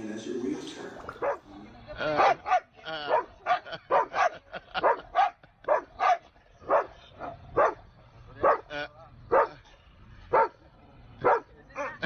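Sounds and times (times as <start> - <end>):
dog barking: 1.1 - 7.8, 8.4 - 9.6, 10.3 - 10.6, 11.2 - 12.0.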